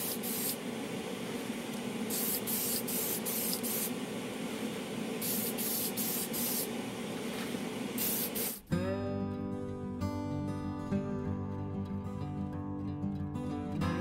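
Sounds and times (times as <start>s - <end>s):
spray can hissing: 0.0s - 0.6s, 2.1s - 4.0s, 5.2s - 6.8s, 7.9s - 8.7s.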